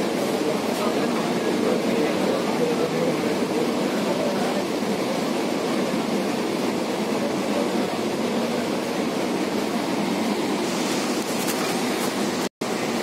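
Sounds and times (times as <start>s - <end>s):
train car running noise: 0.0s - 13.0s.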